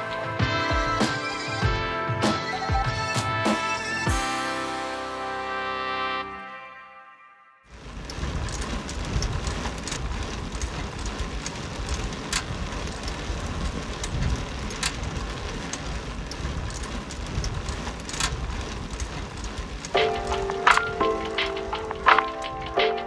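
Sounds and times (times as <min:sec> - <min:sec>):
traffic hiss: 0:07.7 - 0:23.0
sharp clicks: 0:08.1 - 0:23.0.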